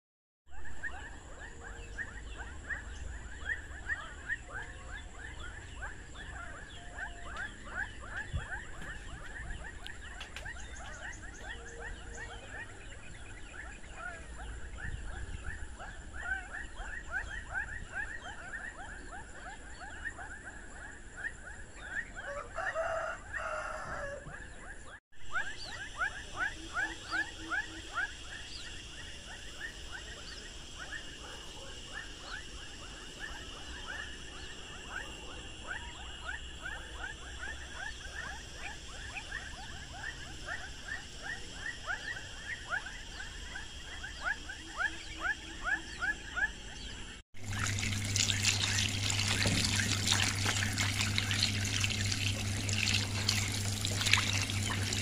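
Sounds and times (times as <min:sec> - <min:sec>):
high insect drone: 0:25.4 - 0:55.0.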